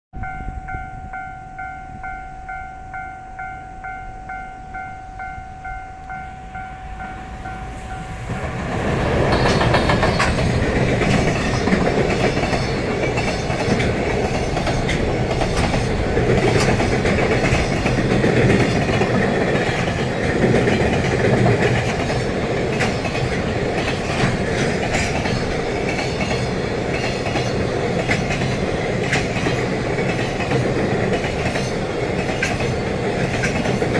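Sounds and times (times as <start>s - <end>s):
level crossing alarm bell: 0.2s - 8.2s
train wheels rumbling: 4.3s - 33.9s
wheels clacking over rail joints: 8.2s - 33.9s.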